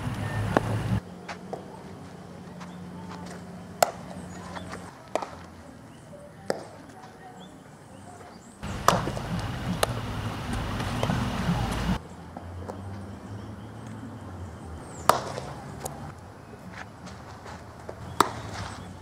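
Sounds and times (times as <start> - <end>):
low outdoor hum: 0.0 - 19.0
bat hitting ball: 3.8 - 5.4, 8.6 - 11.9, 15.0 - 16.0, 18.1 - 18.7
ball smacking into gloves: 8.7 - 11.8, 15.1 - 16.0.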